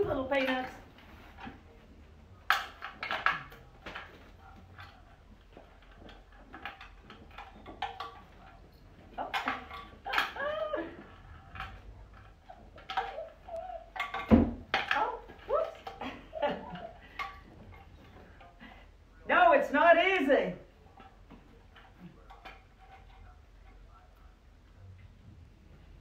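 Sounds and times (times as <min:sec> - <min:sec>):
puppies yipping and whining: 0:12.4 - 0:14.3.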